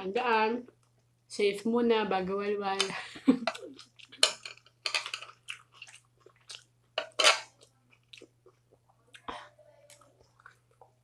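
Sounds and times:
food crunching: 3.4 - 11.0.

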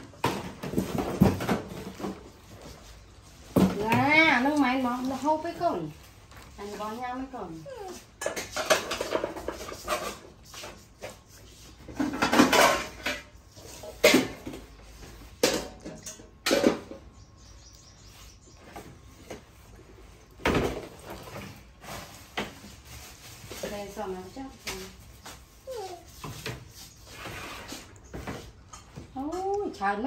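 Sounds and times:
pots and baskets clattering: 0.0 - 2.7, 8.1 - 17.1.

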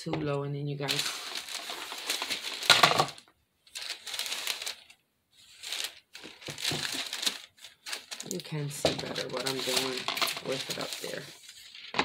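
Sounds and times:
foam pieces rubbing and scraping: 5.4 - 11.8.

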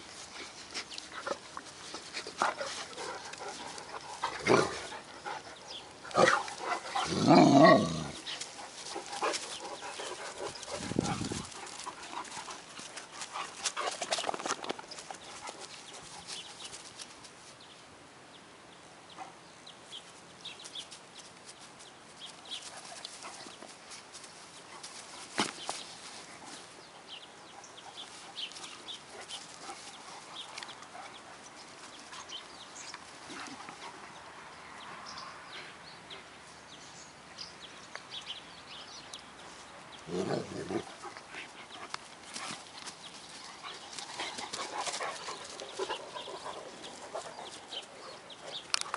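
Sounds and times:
dogs playing rough: 0.1 - 17.2, 27.7 - 34.3, 40.0 - 48.9
deep dog vocalizing: 40.0 - 41.2.

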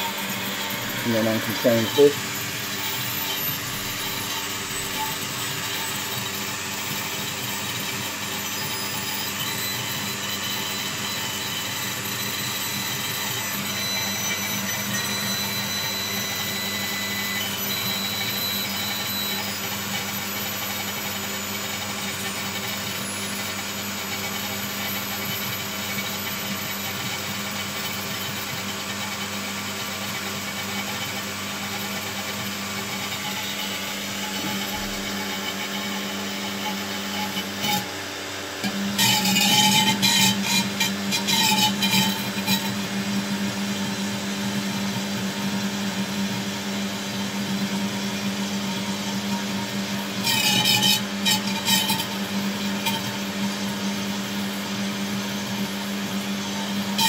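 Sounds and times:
faint high whistling tones: 0.0 - 6.0, 8.5 - 21.6
cooling fan whirring: 0.0 - 57.0.

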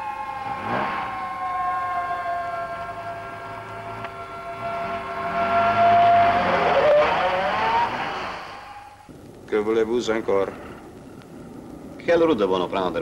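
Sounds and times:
car driving past: 0.3 - 9.0
steady tone: 2.4 - 9.1.

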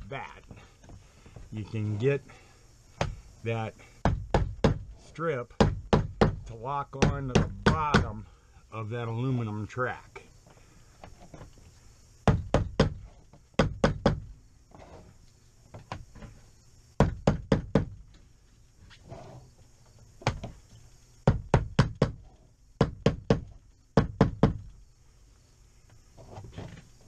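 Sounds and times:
hammer tapping: 7.0 - 8.2.

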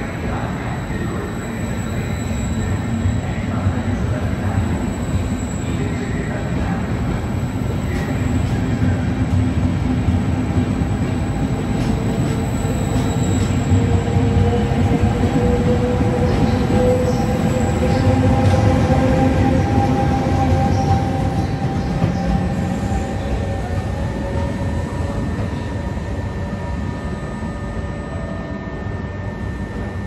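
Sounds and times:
electric locomotive passing: 0.0 - 30.0
train coaches rumbling past: 0.0 - 30.0
train whine rising in pitch: 11.2 - 30.0.

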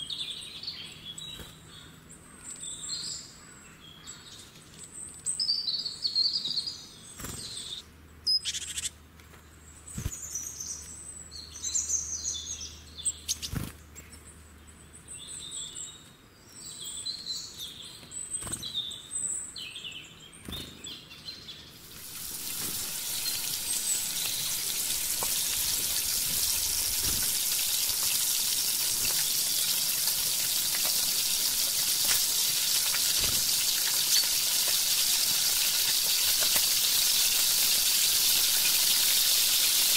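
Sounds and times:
birds chirping: 9.6 - 39.9
chicken deep-frying in hot oil: 21.8 - 39.9.

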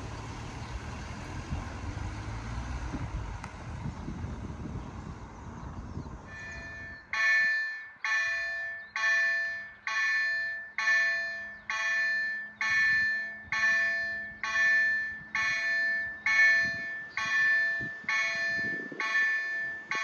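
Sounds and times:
level crossing warning bell: 6.3 - 20.0.

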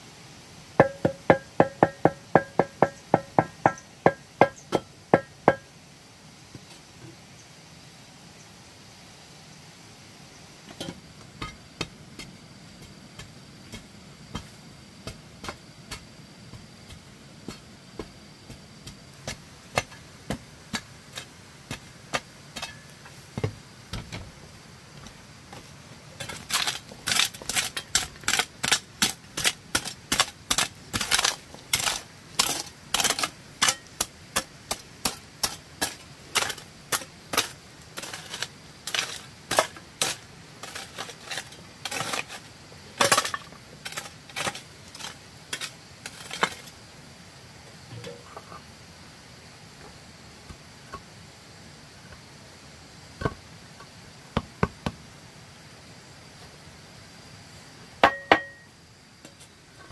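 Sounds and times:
hoe striking packed dirt: 0.8 - 5.7, 10.7 - 24.3, 25.0 - 46.8, 58.0 - 58.7.

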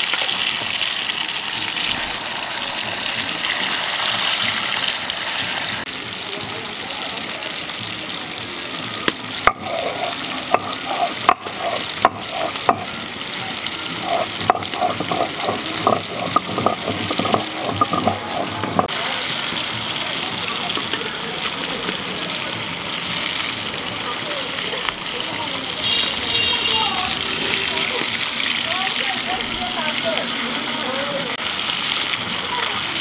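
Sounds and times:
stone roller gritty scraping: 9.4 - 13.0, 13.8 - 18.9
stone knocking on stone: 9.5 - 12.9, 14.0 - 18.9.

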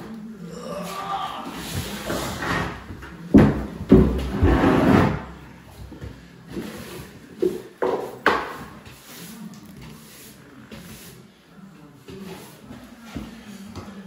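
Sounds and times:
broom sweeping concrete floor: 1.5 - 2.9, 4.2 - 5.6, 6.4 - 13.8
shower tray scraping: 4.0 - 5.4.

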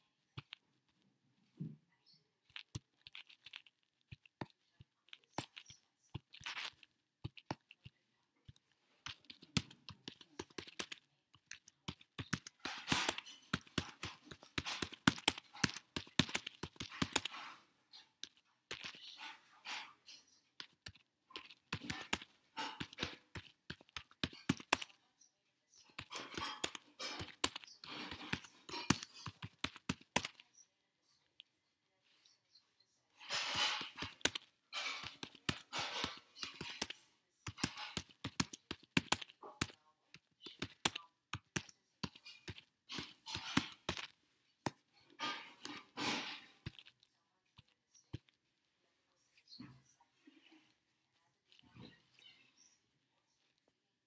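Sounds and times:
computer keyboard typing: 5.1 - 17.5, 20.6 - 25.0, 26.0 - 30.4, 33.3 - 44.1.

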